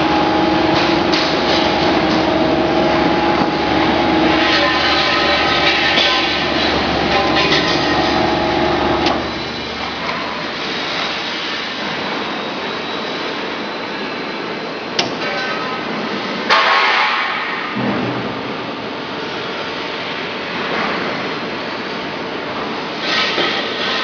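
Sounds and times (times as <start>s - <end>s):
rushing machine noise: 0.0s - 12.2s
machine humming tone: 0.0s - 13.0s.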